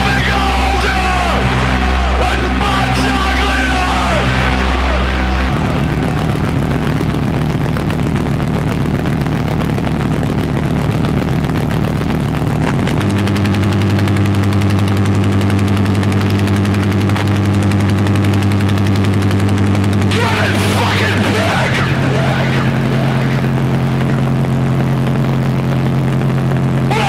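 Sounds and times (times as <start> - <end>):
harsh noise music: 0.0 - 27.0
low drone: 0.0 - 27.0
fast pulsing buzz: 13.1 - 27.0.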